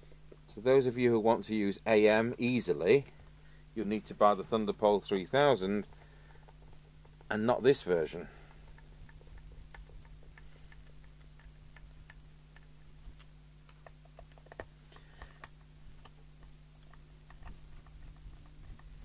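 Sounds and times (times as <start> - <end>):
steady low hum: 0.0 - 19.0
clicks and taps on radio casing: 5.8 - 7.3.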